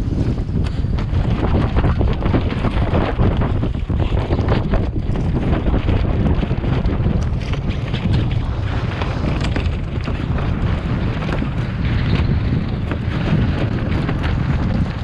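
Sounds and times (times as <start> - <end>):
rough sea slapping boat hull: 0.0 - 15.0
wind buffeting microphone: 0.0 - 15.0.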